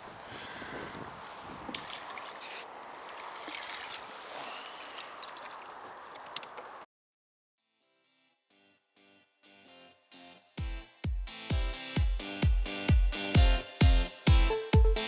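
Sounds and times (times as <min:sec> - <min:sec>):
rustling clothing and net: 0:00.0 - 0:06.8.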